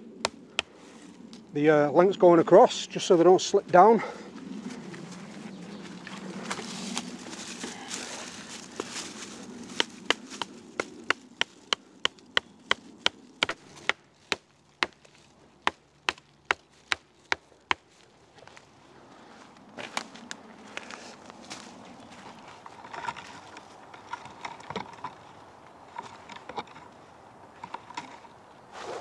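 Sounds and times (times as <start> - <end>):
rustling in dry leaves: 4.3 - 27.3
hatchet knocking wooden stake: 9.8 - 15.0.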